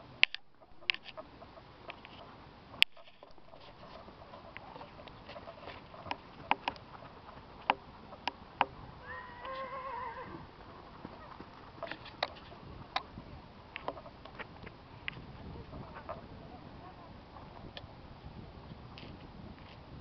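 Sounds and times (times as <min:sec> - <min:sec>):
hooves and tack knocking: 0:02.9 - 0:13.2
horse whinnying: 0:09.0 - 0:10.5.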